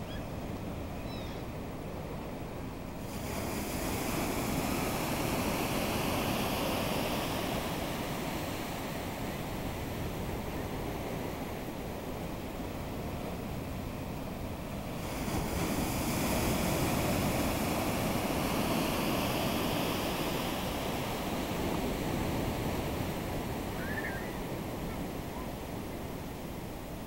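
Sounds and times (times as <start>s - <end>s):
ocean wave breaking: 14.8s - 26.8s.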